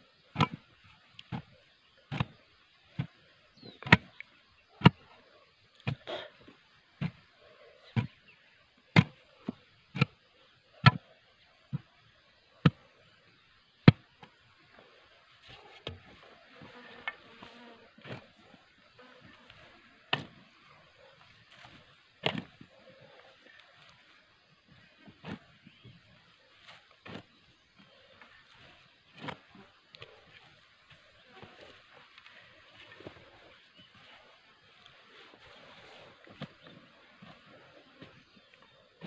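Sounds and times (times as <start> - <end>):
hoe chopping into earth: 0.4 - 0.6, 2.1 - 2.4, 3.8 - 4.2, 8.9 - 9.2, 10.8 - 11.0, 20.1 - 20.4, 22.2 - 22.6
faint insect buzzing: 16.3 - 19.9.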